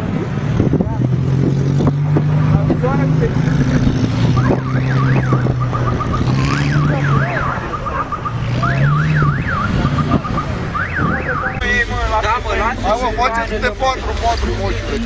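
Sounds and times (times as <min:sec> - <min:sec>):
car alarm: 0:04.4 - 0:11.6.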